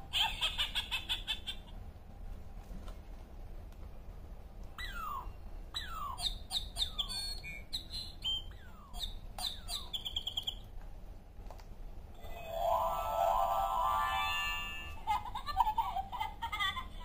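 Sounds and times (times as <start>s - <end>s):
recorded birdsong through small speaker: 0.0s - 1.8s, 4.5s - 11.4s.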